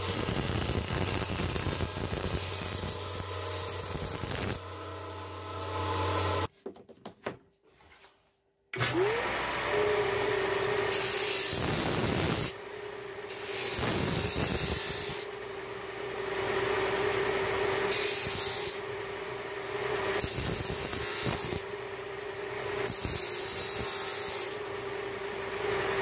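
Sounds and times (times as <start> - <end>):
sander motor hum: 0.0 - 6.5, 8.8 - 26.0
sanding disc grinding wood: 0.0 - 6.5, 16.5 - 18.9, 19.7 - 21.7, 22.6 - 24.7.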